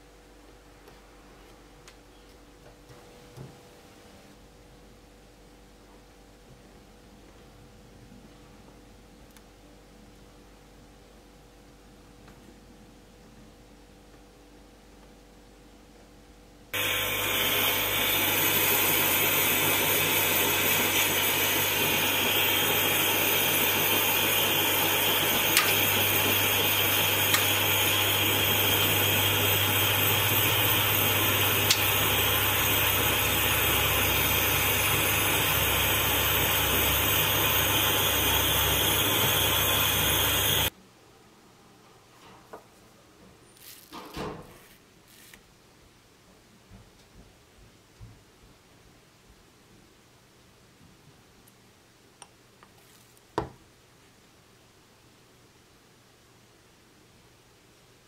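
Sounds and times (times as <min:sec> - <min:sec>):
gas torch flame hissing: 0:16.8 - 0:40.7.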